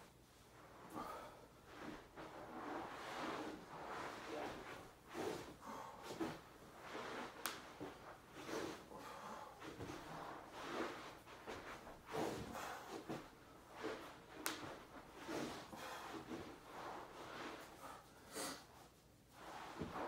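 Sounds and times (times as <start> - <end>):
clothes rustling on rug: 0.0 - 18.0, 18.9 - 20.0.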